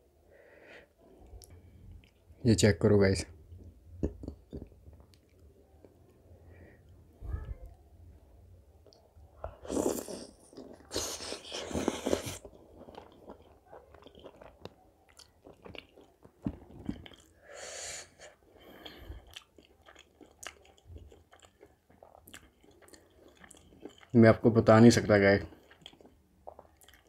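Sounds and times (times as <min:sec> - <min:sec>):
chewing and biting food: 0:09.5 - 0:17.4, 0:18.7 - 0:24.2, 0:25.5 - 0:27.0.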